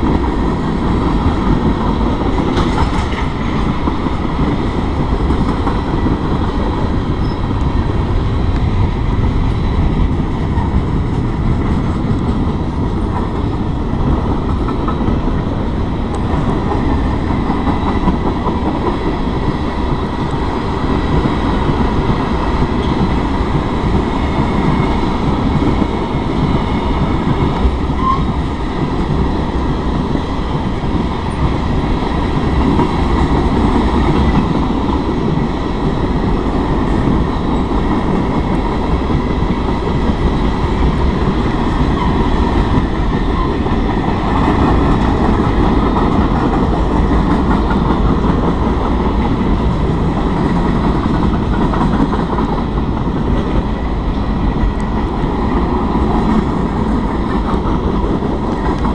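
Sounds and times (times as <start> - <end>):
freight train rumbling on rails: 0.0 - 58.9.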